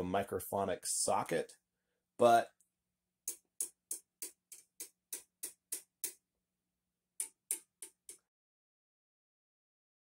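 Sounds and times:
chopstick tapping on amp tubes: 3.2 - 6.2, 7.2 - 8.3.

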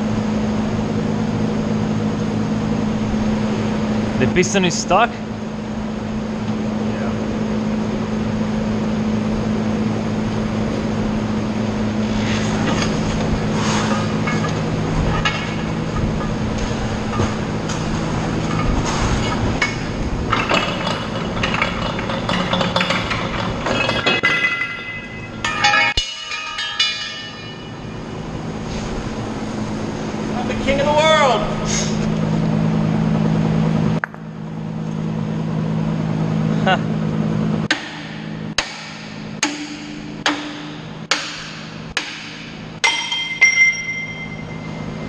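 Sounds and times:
steady low hum: 0.0 - 45.0
tools clanking on metal: 12.5 - 27.9.

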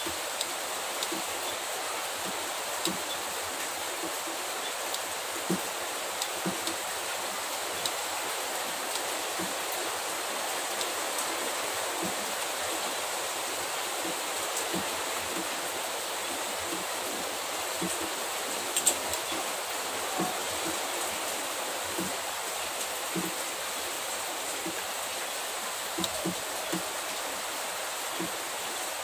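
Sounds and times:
steady hiss: 0.0 - 29.0
faint clicks: 18.7 - 19.4, 23.1 - 23.4.

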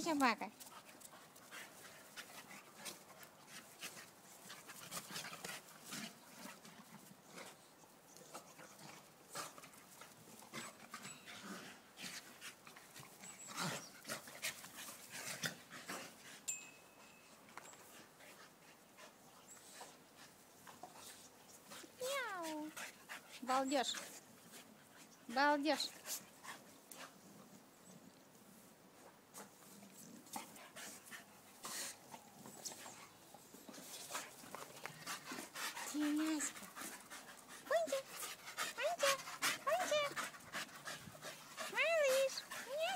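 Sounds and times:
dogs panting: 0.1 - 27.6, 29.0 - 42.9
dogs sniffing: 29.3 - 42.9.

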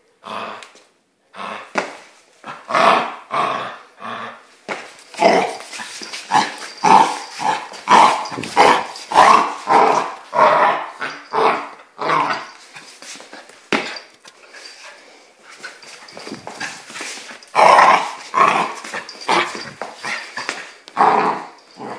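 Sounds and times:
puppy growling and barking: 5.2 - 12.6, 16.1 - 21.9.

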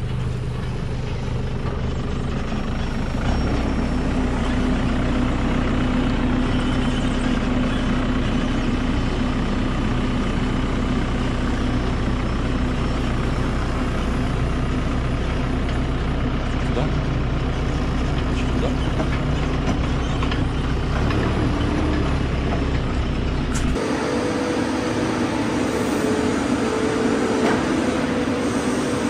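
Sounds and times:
diesel engine revving: 0.0 - 29.0.

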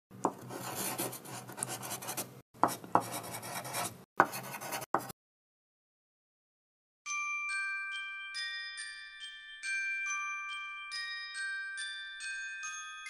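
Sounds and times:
pen scratching in handwriting: 0.3 - 5.1.

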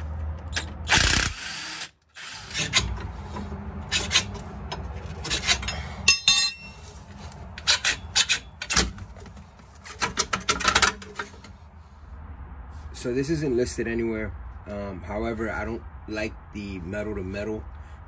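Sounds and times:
metal scraping and rubbing: 2.4 - 11.6
ringing metal clink: 5.7 - 6.8.

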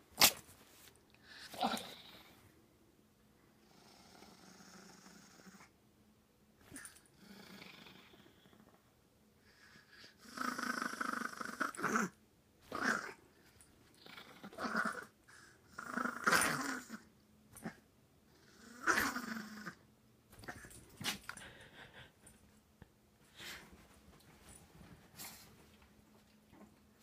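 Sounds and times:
small dog growling: 1.4 - 2.4, 3.6 - 5.7, 6.6 - 8.8, 10.1 - 13.2, 13.9 - 19.8.

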